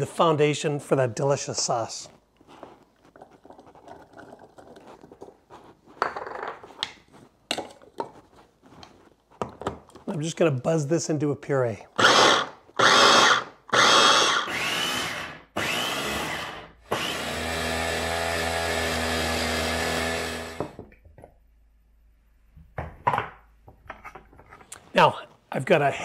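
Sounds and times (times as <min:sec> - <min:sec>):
food chopper motor: 0:12.0 - 0:20.8.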